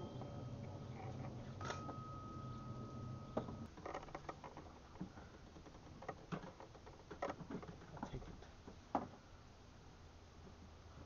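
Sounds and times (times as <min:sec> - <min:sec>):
faint steady tone: 0:00.0 - 0:03.7.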